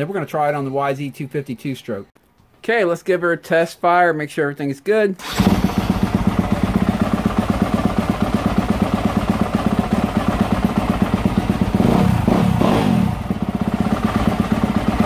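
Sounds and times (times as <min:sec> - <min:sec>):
motorcycle engine idling: 0:05.2 - 0:15.0.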